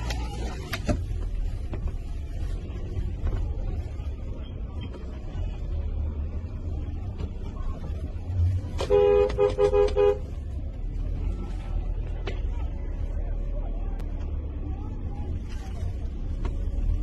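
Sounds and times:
street noise rumble: 0.0 - 17.0
vehicle horn honking: 8.8 - 10.3.

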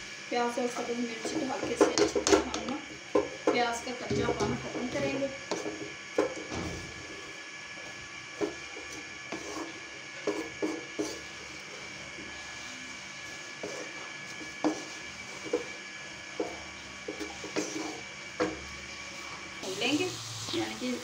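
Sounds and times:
hot oil hissing: 0.0 - 21.0
spatula scraping a wok: 4.2 - 6.4, 7.0 - 20.0.

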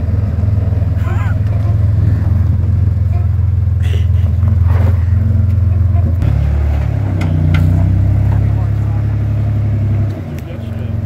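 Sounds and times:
engine running at low revs: 0.0 - 11.0.

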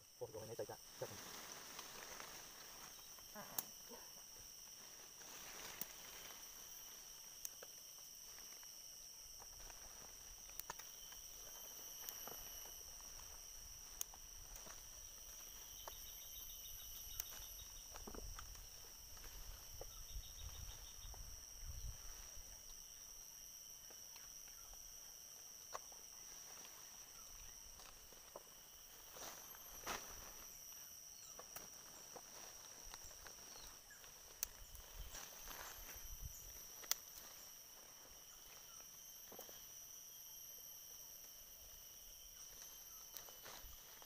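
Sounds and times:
high-pitched insect drone: 0.0 - 44.0
rapid pulsed chirping: 9.0 - 23.5, 24.2 - 44.0.

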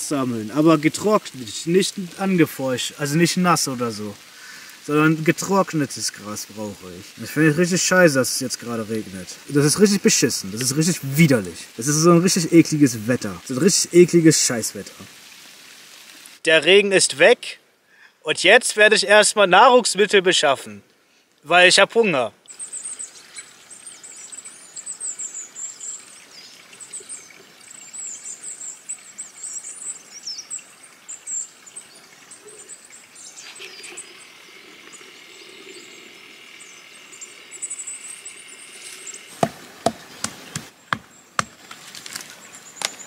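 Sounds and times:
songbirds chirping: 0.0 - 15.4, 16.0 - 43.0
bark cracking and tearing: 41.4 - 43.0.

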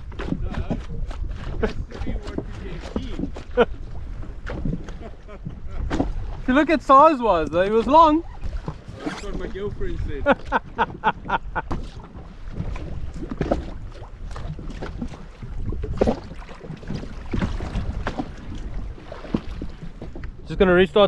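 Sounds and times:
waves slapping against a hull: 0.0 - 21.0
wind on microphone: 0.0 - 21.0
man laughing: 1.6 - 2.2, 3.0 - 3.8, 4.9 - 5.9, 10.2 - 11.7.

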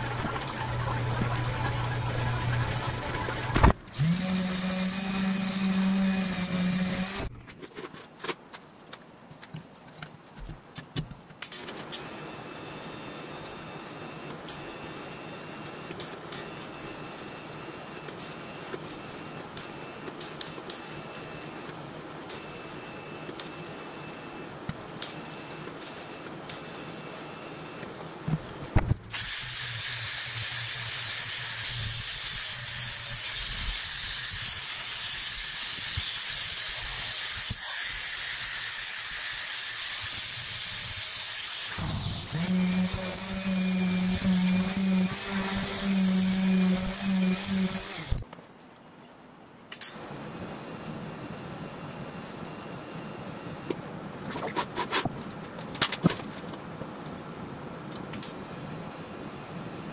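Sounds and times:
orbital sander motor hum: 0.0 - 7.3, 29.1 - 48.2
welding arc hissing and crackling: 29.1 - 48.2.

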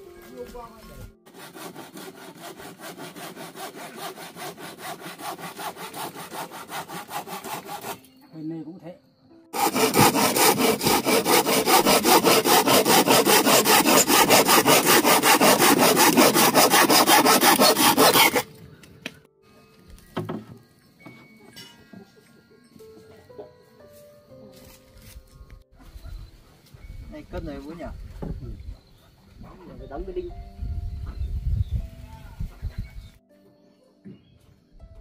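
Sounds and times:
hand saw cutting wood: 1.2 - 8.0, 9.6 - 18.5.

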